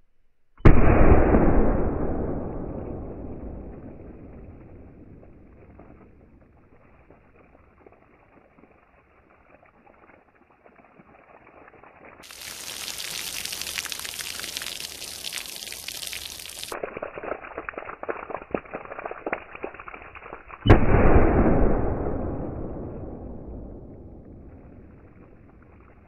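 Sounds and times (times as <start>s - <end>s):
loud revolver shot: 0.6s - 5.2s, 20.7s - 24.5s
water pouring and splattering: 4.3s - 20.8s, 24.1s - 26.0s.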